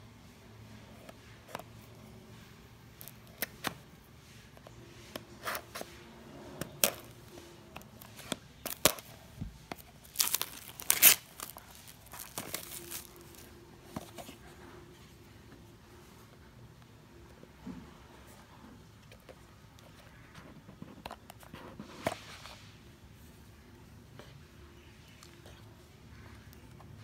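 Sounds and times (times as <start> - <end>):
box seal tearing: 9.8 - 13.5.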